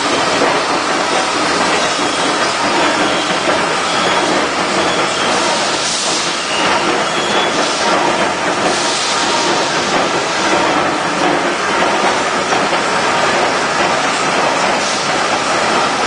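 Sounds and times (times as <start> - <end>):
milling machine running with hissing: 0.0 - 16.0.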